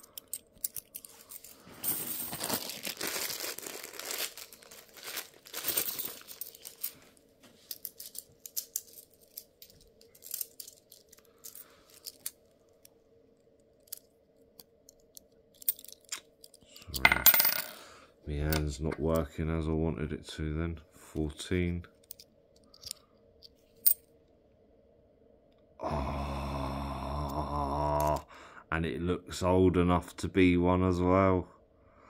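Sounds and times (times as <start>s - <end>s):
coins clicking: 0.0s - 2.4s, 7.7s - 12.4s, 14.9s - 17.8s
plastic bag crinkling and tearing: 2.0s - 7.0s.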